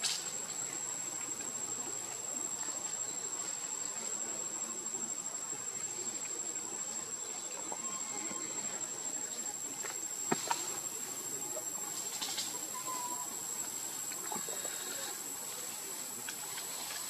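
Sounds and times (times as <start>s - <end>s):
high-pitched insect drone: 0.1s - 17.0s
faint clicks and rustles: 9.6s - 17.0s.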